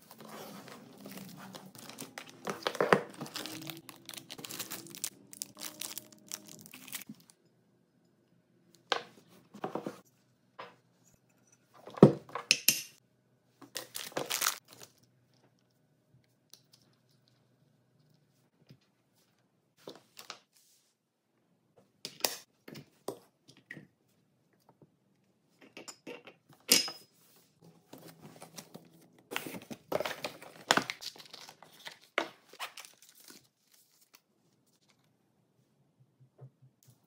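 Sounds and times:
packaging crinkling: 0.1 - 7.3, 13.8 - 15.0.

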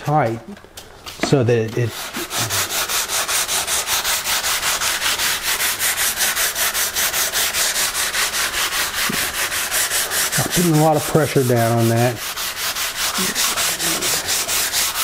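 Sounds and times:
sandpaper rubbing on wood: 1.0 - 15.0.

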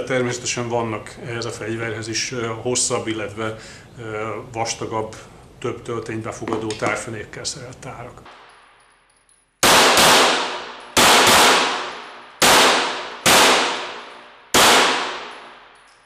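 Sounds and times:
pistol shots echoing indoors: 8.3 - 9.0, 9.6 - 16.0.

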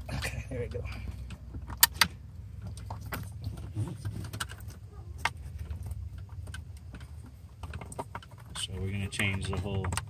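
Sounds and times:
steady low rumble: 0.0 - 8.6
plastic clicks and rattles: 4.0 - 10.0.

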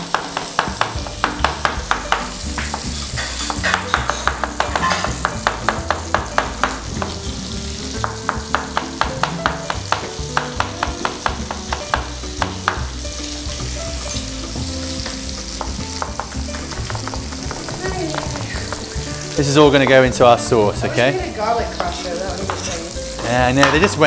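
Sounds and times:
knife chopping on wooden board: 0.0 - 7.2, 8.0 - 13.0, 15.0 - 19.1
chicken sizzling in a pan: 0.0 - 24.0.

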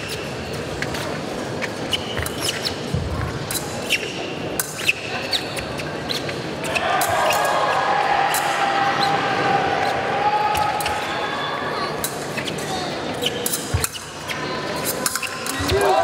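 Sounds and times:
shoes squeaking: 0.0 - 7.8, 8.9 - 16.0
fencing blades clicking: 12.0 - 14.1, 14.8 - 16.0.

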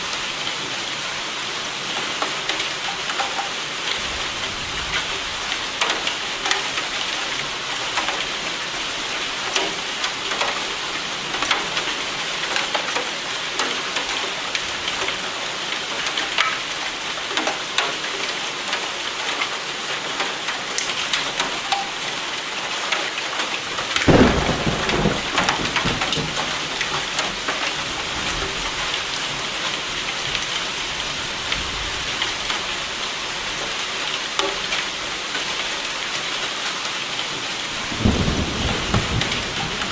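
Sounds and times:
steady rain: 0.0 - 39.9
thunderclap: 24.1 - 26.6, 38.0 - 39.9.

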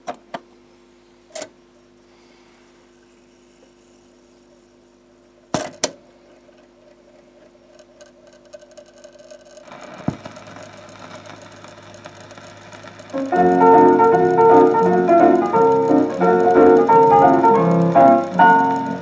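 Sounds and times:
faint steady hum: 0.0 - 19.0
record surface hiss and crackle: 2.8 - 19.0
sharp clicks: 7.8 - 19.0.

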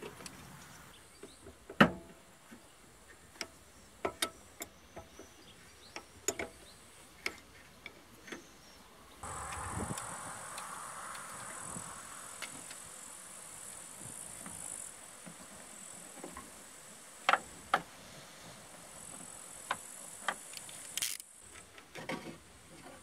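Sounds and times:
faint high hum: 8.6 - 17.1.

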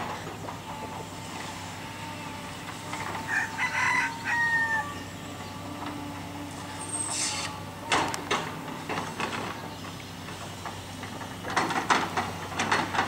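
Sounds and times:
excavator running: 0.0 - 13.0.

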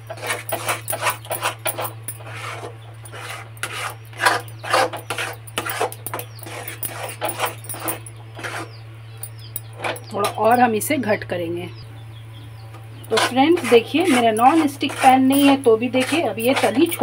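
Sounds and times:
metal spatula scraping dough in pan: 0.0 - 8.8, 13.1 - 17.0.

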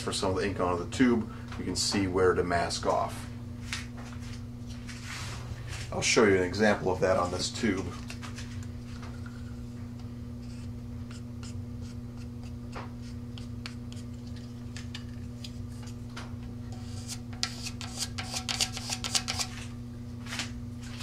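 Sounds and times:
steady low hum: 0.0 - 21.0
wooden stick scraping tube: 10.4 - 16.0, 16.7 - 19.5.

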